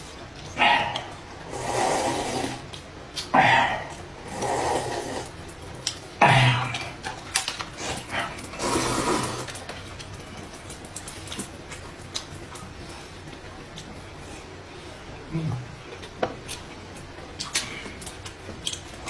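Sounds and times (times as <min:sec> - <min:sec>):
slurping and chewing: 0:00.8 - 0:06.0, 0:06.7 - 0:14.5.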